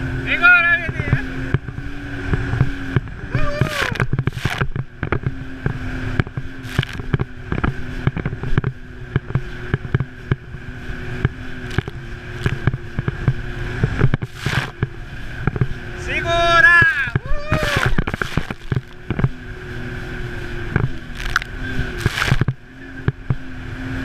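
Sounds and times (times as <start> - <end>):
jet ski engine running: 0.0 - 24.0
hull slapping on water: 2.4 - 10.4, 11.2 - 15.8, 16.8 - 19.4, 20.7 - 23.4.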